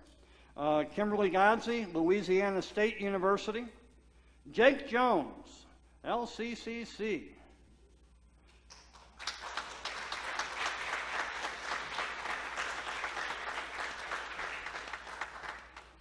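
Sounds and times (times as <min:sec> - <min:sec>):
steady low hum: 0:00.0 - 0:16.0
congregation applauding: 0:08.7 - 0:16.0.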